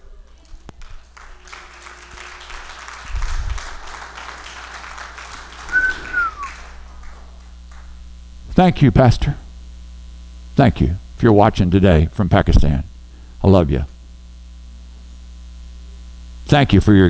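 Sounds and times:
crowd applauding: 0.0s - 8.0s
short falling whistle: 5.6s - 6.7s.

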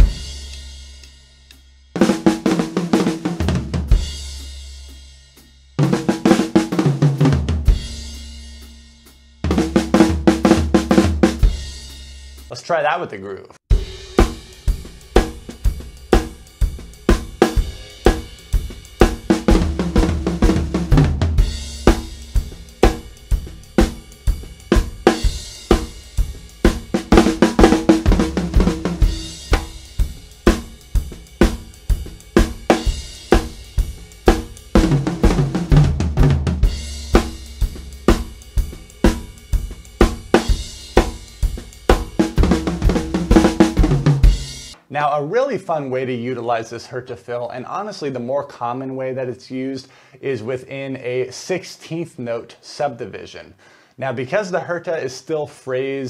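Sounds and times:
fast tom fill: 0.0s - 0.8s, 2.0s - 13.0s, 13.7s - 44.9s
drum kit groove: 0.0s - 46.5s.

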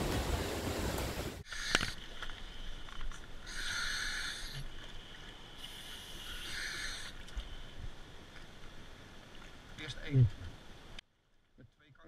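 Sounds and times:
scuba regulator hissing: 1.4s - 2.0s, 3.5s - 4.6s, 5.6s - 7.2s.

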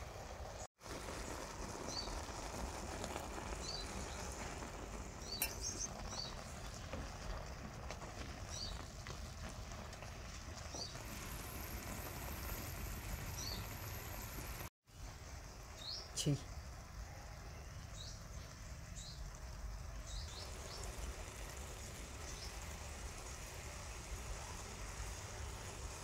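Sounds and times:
broth bubbling in a pan: 0.0s - 26.0s
small bird chirping: 5.2s - 7.0s, 13.3s - 13.8s, 14.9s - 16.7s, 17.3s - 19.3s, 20.0s - 21.1s.

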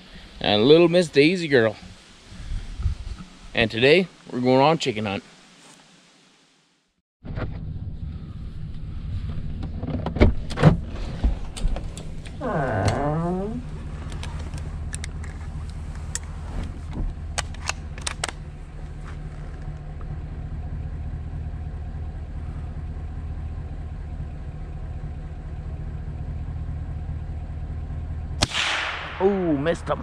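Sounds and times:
truck engine idling: 11.4s - 30.0s
rifle clicks and clatters: 17.3s - 18.4s.

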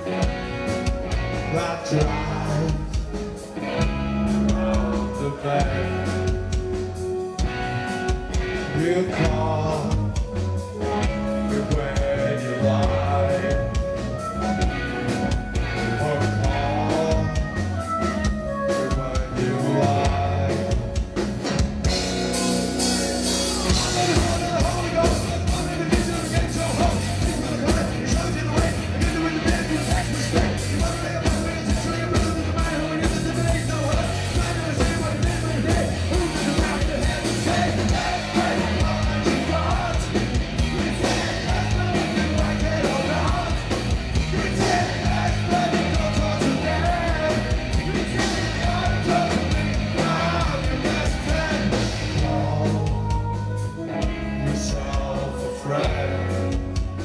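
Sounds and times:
drum kit beat: 0.0s - 57.0s
electric guitar: 0.0s - 57.0s
person singing: 4.3s - 6.5s, 8.6s - 14.6s, 15.4s - 21.0s, 23.2s - 57.0s.

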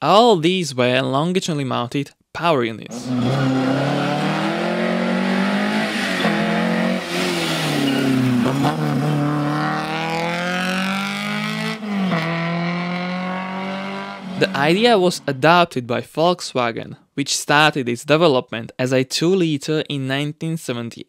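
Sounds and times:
rally car engine revving: 2.9s - 15.0s.

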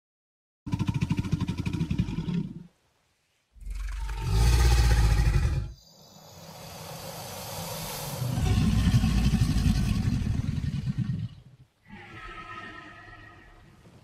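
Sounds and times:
alligator deep bellow: 3.6s - 5.8s, 6.4s - 13.5s
alligator pulsing growl: 3.6s - 13.5s.

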